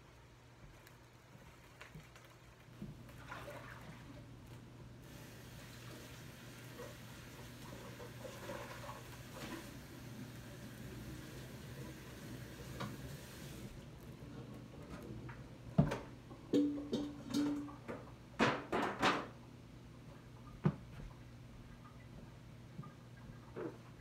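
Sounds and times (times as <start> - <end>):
faint hiss: 5.0 - 13.8.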